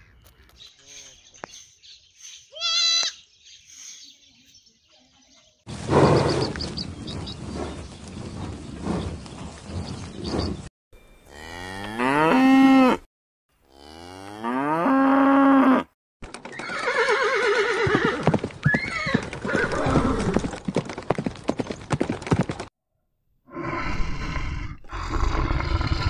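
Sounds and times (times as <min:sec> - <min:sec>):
cow mooing: 0:11.3 - 0:13.0, 0:13.7 - 0:15.9
horse whinnying: 0:16.5 - 0:20.4.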